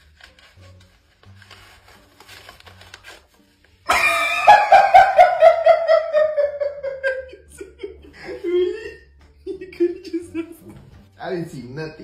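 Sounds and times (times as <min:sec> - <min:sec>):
person laughing heartily: 0:03.9 - 0:10.8.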